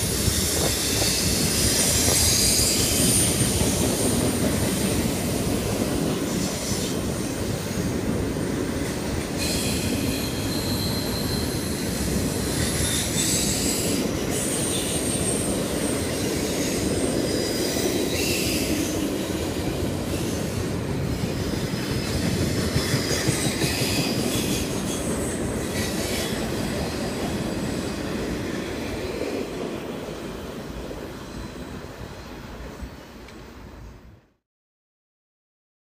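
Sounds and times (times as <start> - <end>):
train wheels rumbling on rails: 0.0 - 33.9
high wheel squeals: 9.4 - 19.0.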